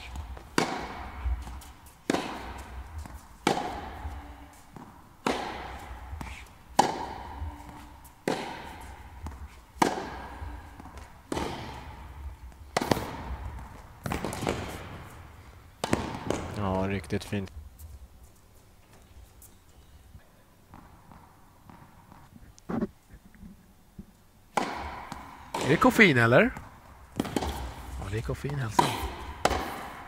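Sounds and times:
tennis ball hit by rackets: 0.0 - 16.6, 24.5 - 26.0, 26.6 - 30.0.

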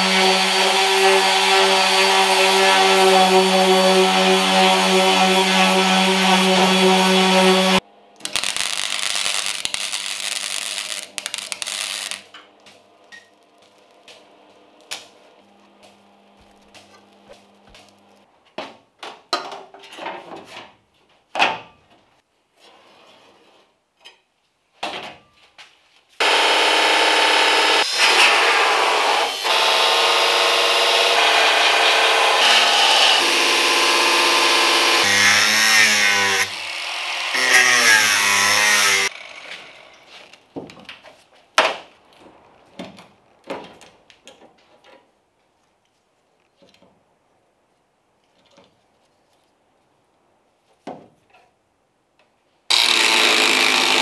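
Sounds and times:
angle grinder cutting metal: 0.0 - 12.3, 26.2 - 40.1, 52.7 - 54.0.

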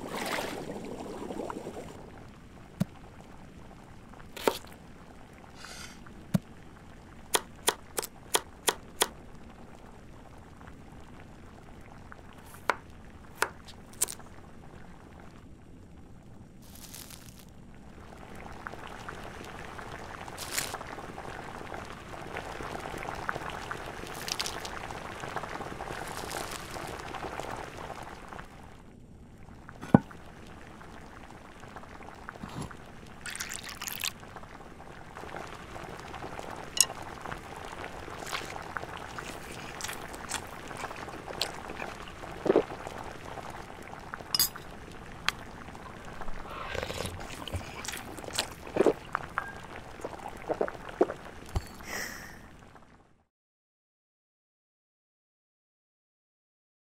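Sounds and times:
soup bubbling in a pot: 0.0 - 53.0
drink pouring over ice: 33.2 - 34.2, 38.2 - 43.1, 45.8 - 51.8
glassy ice clinks: 44.4 - 44.7, 51.6 - 51.9.

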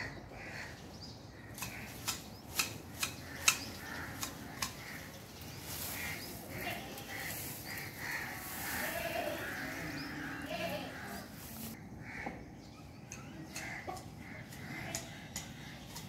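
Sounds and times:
hedge shears snipping branches: 1.5 - 6.1.

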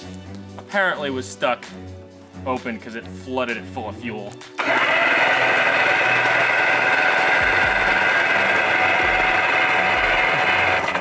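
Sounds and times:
engine running at high speed: 4.6 - 11.0.

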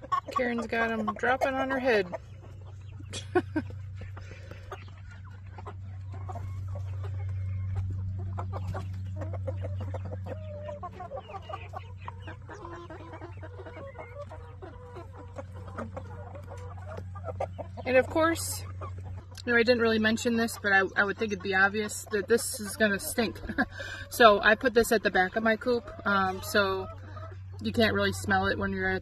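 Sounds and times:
hens clucking: 0.0 - 29.0
low hum: 1.8 - 12.4.

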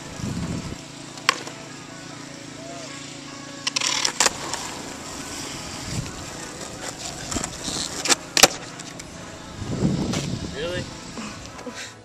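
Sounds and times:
skateboard clacks: 1.2 - 1.6, 6.6 - 9.0
skateboard wheels rolling on asphalt: 3.6 - 11.6.

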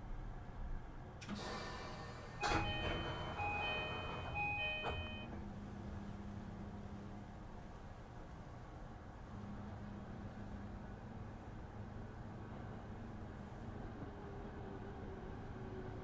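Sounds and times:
train door electronic chime: 1.4 - 5.4
sliding train doors knocking: 2.4 - 5.5.

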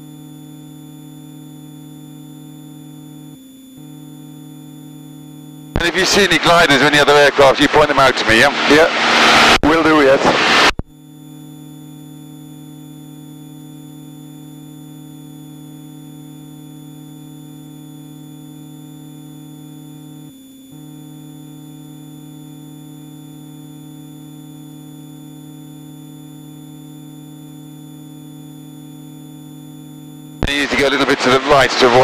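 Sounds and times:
steady intercom hum: 3.8 - 13.9, 29.9 - 32.0.

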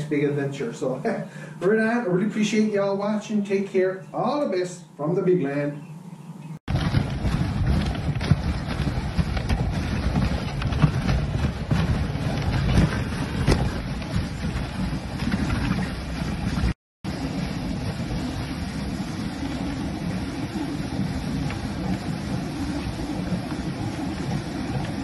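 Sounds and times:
sled runners scraping on snow: 6.7 - 25.0
wind on microphone: 6.7 - 25.0.

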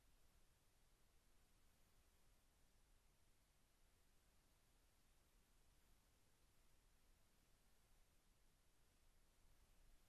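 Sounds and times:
faint background hiss: 0.0 - 10.0.

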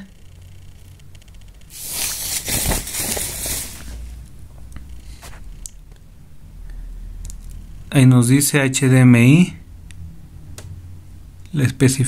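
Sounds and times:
rustling handling noise: 1.7 - 4.2.

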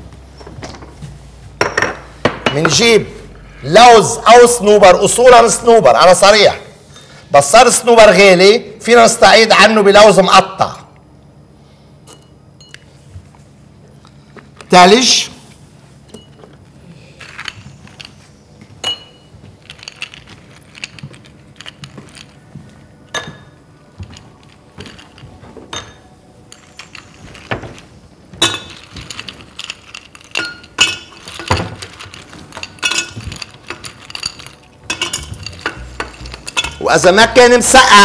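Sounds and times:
ice cubes clinking in glasses: 18.8 - 22.4, 23.1 - 37.2.

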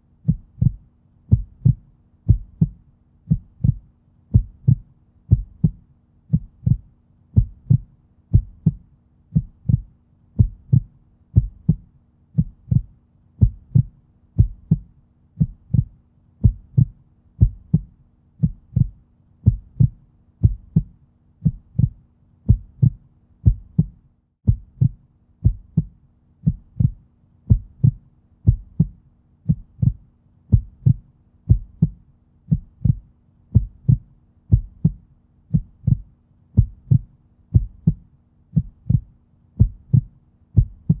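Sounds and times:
heartbeat-like double thump: 0.3 - 6.8, 7.4 - 8.8, 9.4 - 9.8, 12.4 - 14.8, 15.4 - 25.9, 26.5 - 33.0, 33.6 - 36.0, 36.6 - 38.0, 38.6 - 41.0.

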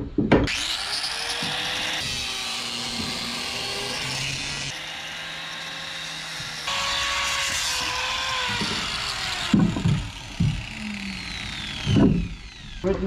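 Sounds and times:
angle grinder sanding wood: 0.5 - 13.0
heavy knocks: 8.5 - 10.8, 11.5 - 12.5.

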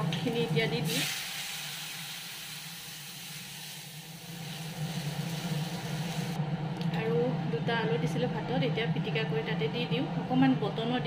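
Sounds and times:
steady low hum: 0.0 - 11.0
greens sizzling in hot oil: 0.2 - 6.4.

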